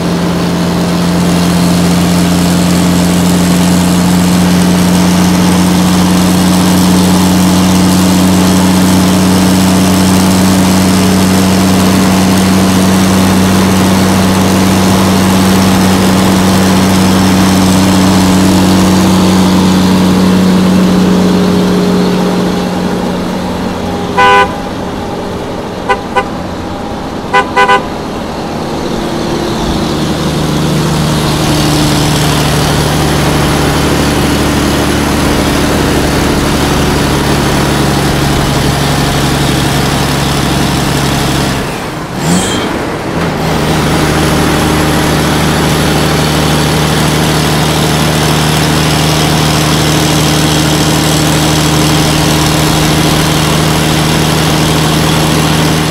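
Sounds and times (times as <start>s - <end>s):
truck engine running: 0.0s - 55.9s
truck horn toots: 23.7s - 28.3s.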